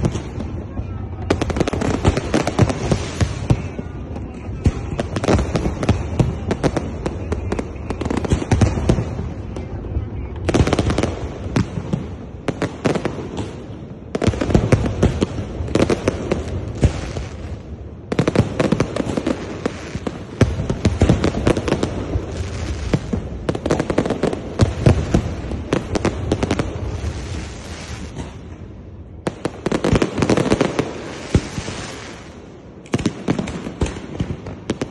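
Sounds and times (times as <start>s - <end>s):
fireworks bangs and crackles: 0.0s - 34.9s.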